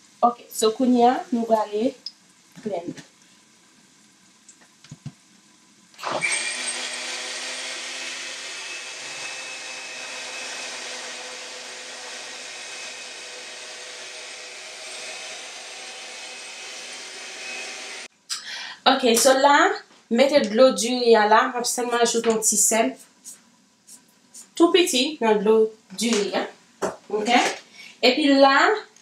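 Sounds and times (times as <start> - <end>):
blender running: 6.0 - 18.1.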